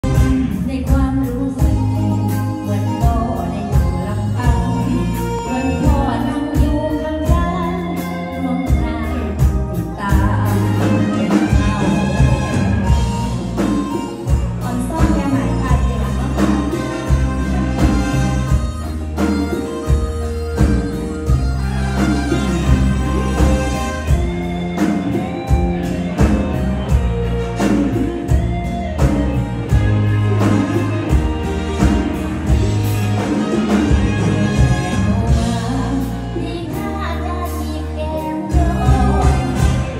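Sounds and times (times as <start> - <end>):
steady drum beat: 0.0 - 2.3, 8.7 - 36.2, 38.5 - 39.9
live band music: 0.0 - 39.9
sustained bass line: 0.0 - 39.9.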